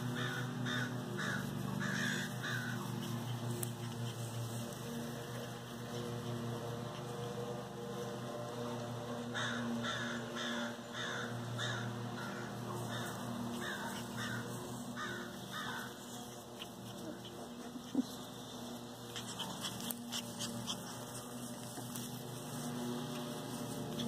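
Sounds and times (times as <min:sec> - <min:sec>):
steady low hum: 0:00.0 - 0:24.0
crow cawing: 0:00.1 - 0:02.8, 0:09.3 - 0:16.0.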